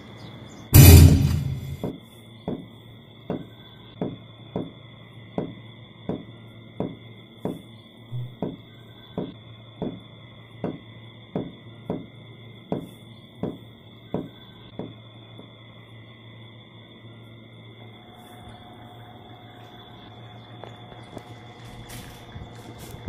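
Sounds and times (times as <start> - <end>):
low hum: 0.8 - 1.9, 8.1 - 8.4.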